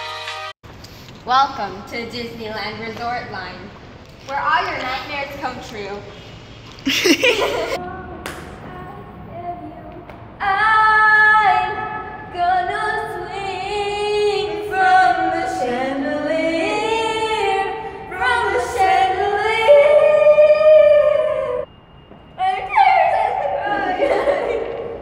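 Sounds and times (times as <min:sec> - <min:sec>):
girls singing in echoing tunnel: 0:07.4 - 0:25.0.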